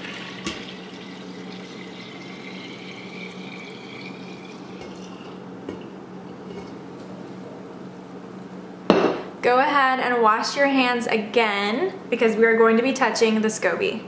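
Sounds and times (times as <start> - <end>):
tea pouring into glass jar: 0.0 - 6.0.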